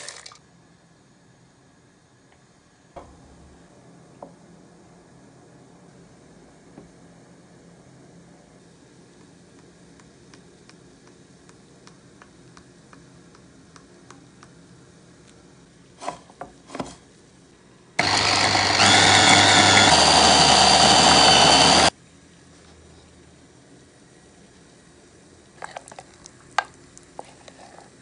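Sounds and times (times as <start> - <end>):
electric chopper motor running: 18.0 - 21.9.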